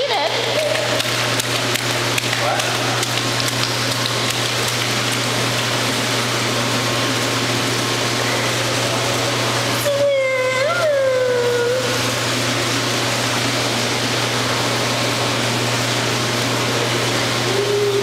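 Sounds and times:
constant low hum: 0:00.0 - 0:18.0
hands splashing water: 0:00.4 - 0:06.2.

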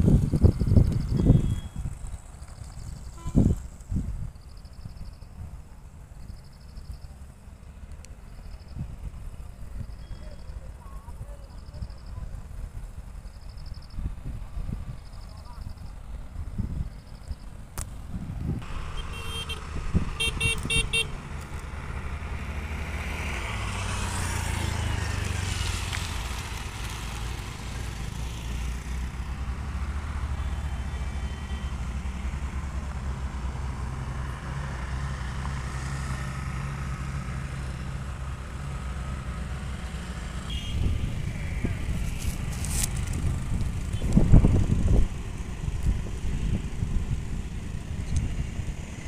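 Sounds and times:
bus engine running: 0:00.0 - 0:49.0
vehicle horn toots: 0:01.2 - 0:01.8, 0:03.1 - 0:03.6, 0:18.8 - 0:21.2, 0:40.4 - 0:41.0.

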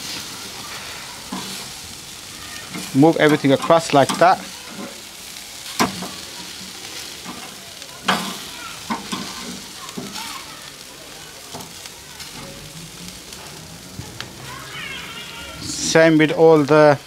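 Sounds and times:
meat sizzling on grill: 0:00.0 - 0:17.0
clicks and knocks on grill grate: 0:05.8 - 0:06.2, 0:07.2 - 0:10.2.

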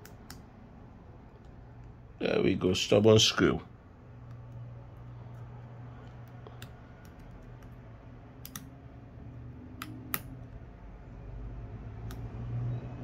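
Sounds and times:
small tools clicking on phone: 0:04.2 - 0:08.8.

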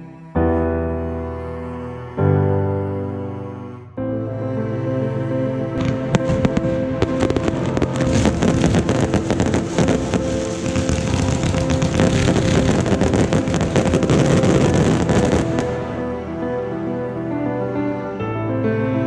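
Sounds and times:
background music: 0:00.0 - 0:19.0
fireworks bangs and crackles: 0:05.8 - 0:16.0.

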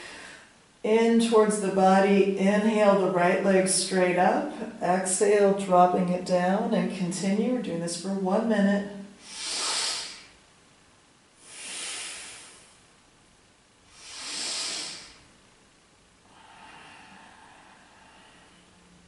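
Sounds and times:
person breathing forcefully: 0:09.2 - 0:10.4, 0:11.4 - 0:12.9, 0:13.9 - 0:15.3, 0:16.2 - 0:19.0.

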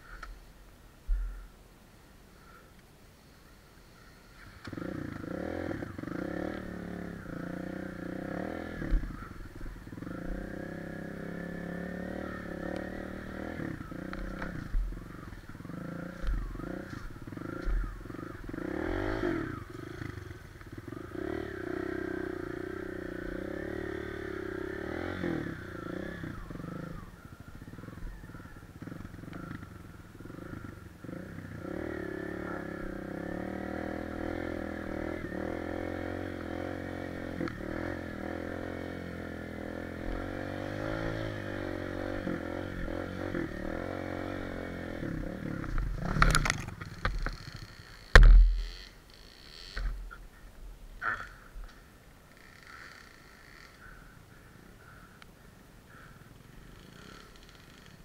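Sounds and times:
motorcycle engine revving: 0:04.3 - 0:50.2, 0:51.0 - 0:54.0, 0:55.9 - 0:58.0
sharp thumps: 0:48.1 - 0:48.7.

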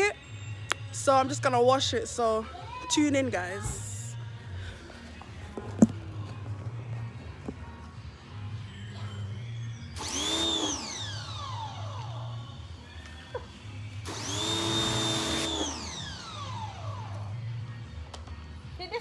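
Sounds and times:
pressure washer motor whining: 0:10.0 - 0:12.4, 0:14.0 - 0:17.2.

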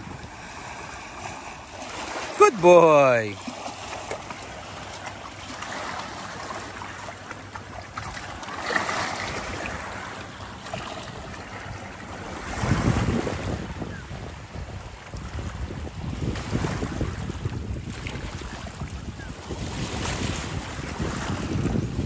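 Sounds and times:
small waves washing on stony shore: 0:00.0 - 0:22.0
wind buffeting microphone: 0:11.5 - 0:22.0.

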